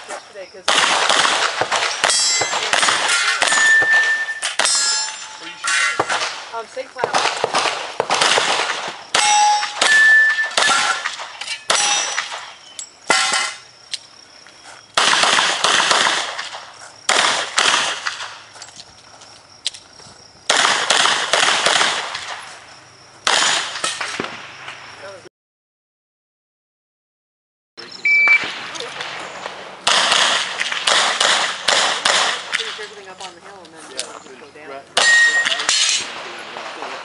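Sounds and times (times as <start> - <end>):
steel targets clanging: 1.7 - 6.7, 9.1 - 13.7, 35.0 - 36.6.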